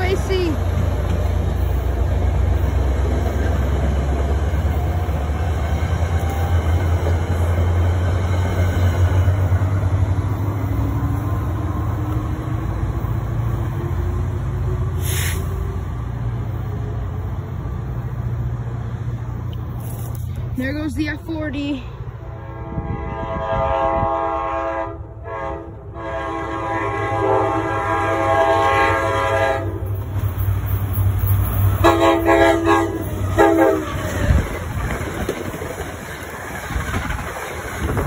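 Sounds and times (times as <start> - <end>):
diesel locomotive drone: 0.0 - 38.0
air hiss: 15.0 - 15.6.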